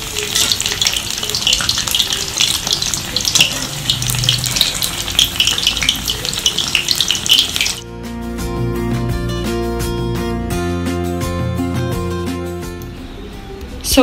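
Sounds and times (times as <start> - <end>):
food deep-frying in hot oil: 0.0 - 7.8.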